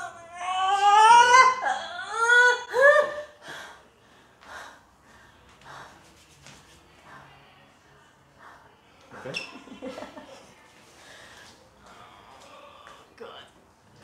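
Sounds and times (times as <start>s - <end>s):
faint breathing: 3.4s - 9.4s, 10.9s - 13.2s.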